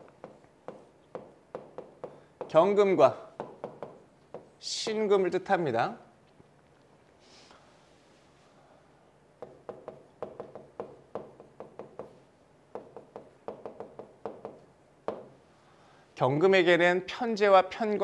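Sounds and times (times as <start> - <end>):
pen tapping on glass: 0.0 - 2.6, 3.4 - 5.0, 9.4 - 15.3.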